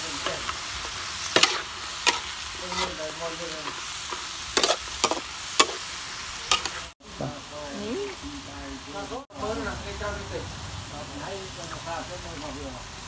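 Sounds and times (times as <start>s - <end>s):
meat sizzling in a wok: 0.0s - 13.0s
metal spatula scraping a wok: 0.1s - 6.9s.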